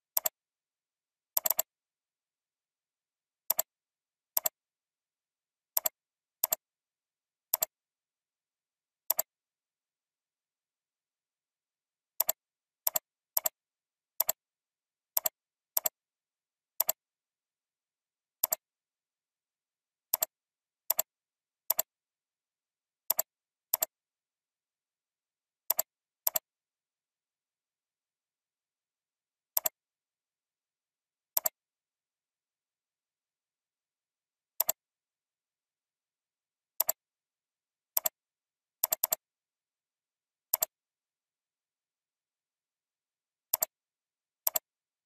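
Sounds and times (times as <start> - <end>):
computer mouse clicks: 0.1 - 0.4, 1.4 - 1.7, 3.5 - 3.7, 4.3 - 4.6, 5.7 - 6.6, 7.5 - 7.7, 9.1 - 9.3, 12.2 - 13.6, 14.2 - 14.4, 15.1 - 16.0, 16.8 - 17.0, 18.4 - 18.6, 20.1 - 21.1, 21.7 - 21.9, 23.1 - 24.0, 25.7 - 26.5, 29.5 - 29.8, 31.3 - 31.6, 34.6 - 34.8, 36.8 - 37.0, 37.9 - 38.2, 38.8 - 39.2, 40.5 - 40.8, 43.5 - 43.8, 44.4 - 44.7.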